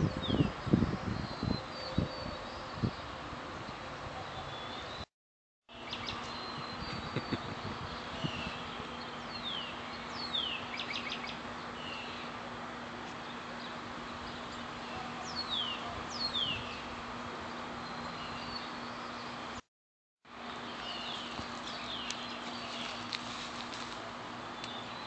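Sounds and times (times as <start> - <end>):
birds whistling: 5.8 - 12.4, 13.6 - 17.0, 17.7 - 19.4.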